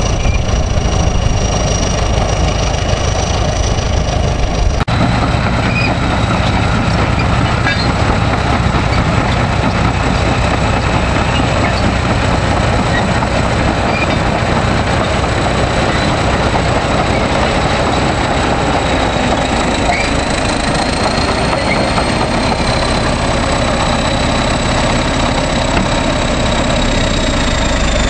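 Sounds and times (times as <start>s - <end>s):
bulldozer diesel engine rumbling: 0.0s - 28.0s.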